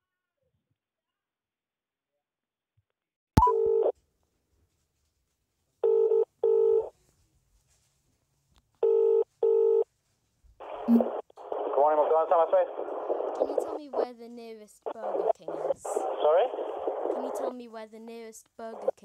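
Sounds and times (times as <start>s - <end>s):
telephone ringback tone: 5.8s - 6.9s, 8.8s - 9.8s.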